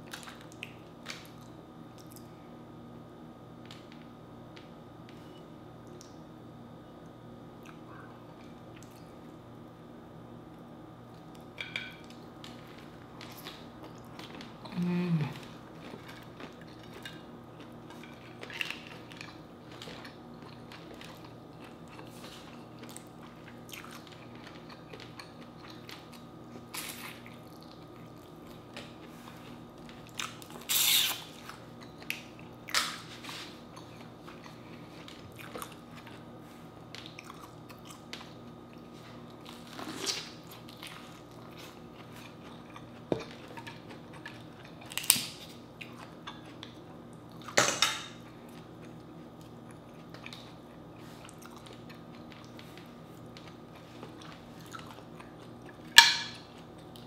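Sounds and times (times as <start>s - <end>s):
faint steady hum: 0.0s - 57.0s
person chewing: 12.4s - 47.6s, 48.5s - 57.0s.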